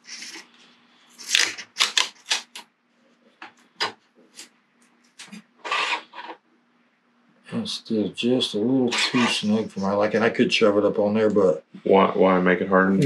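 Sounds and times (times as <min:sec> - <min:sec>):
masking tape peeling and tearing: 0:01.2 - 0:02.6, 0:05.6 - 0:06.3, 0:08.9 - 0:09.8.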